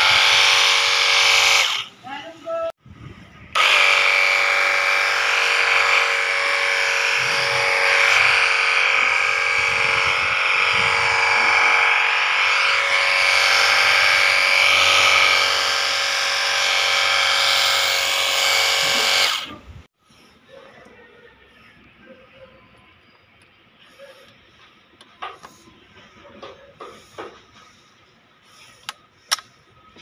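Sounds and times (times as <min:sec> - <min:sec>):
pressure washer motor whining: 0:03.6 - 0:19.7.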